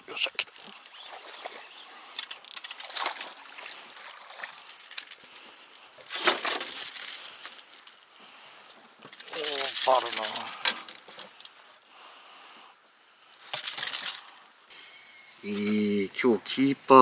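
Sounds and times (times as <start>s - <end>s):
handling rustling: 2.1s - 11.8s, 13.4s - 14.6s.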